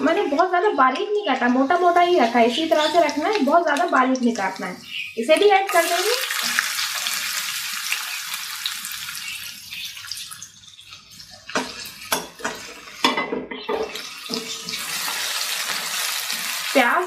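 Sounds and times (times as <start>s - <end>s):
onion and garlic sizzling in oil: 0.0s - 13.1s, 13.8s - 17.0s.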